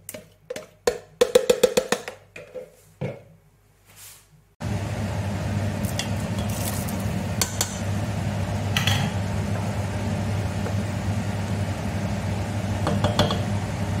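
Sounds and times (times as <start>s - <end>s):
steady low hum: 4.6s - 14.0s.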